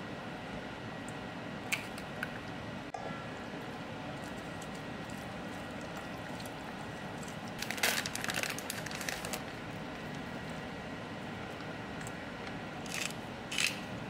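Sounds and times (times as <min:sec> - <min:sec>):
plastic bag crinkling: 0:07.6 - 0:09.6.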